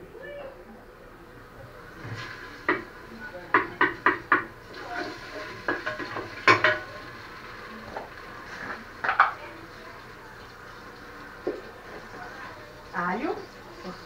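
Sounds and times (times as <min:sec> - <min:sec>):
utensils clattering against pot: 0:03.5 - 0:07.0, 0:08.5 - 0:09.5.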